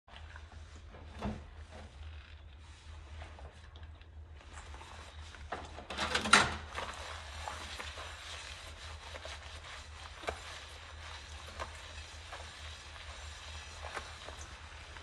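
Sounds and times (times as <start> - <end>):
sponge scrubbing a ceramic plate: 6.7 - 15.0
hands swishing through suds: 6.8 - 15.0.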